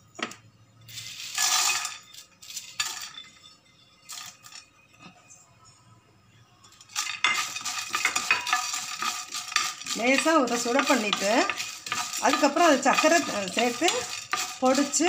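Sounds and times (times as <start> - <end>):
spice pods rattling on glass and metal: 1.0 - 4.7, 6.7 - 15.0.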